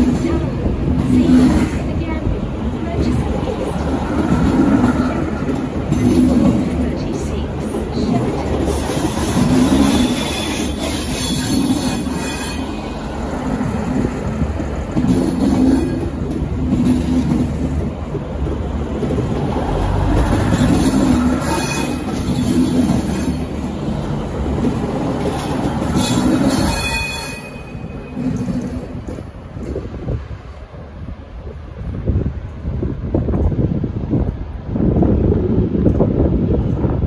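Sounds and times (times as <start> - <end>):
diesel railcars rumbling past: 0.0 - 37.0
faint high wheel squeals: 26.0 - 28.2.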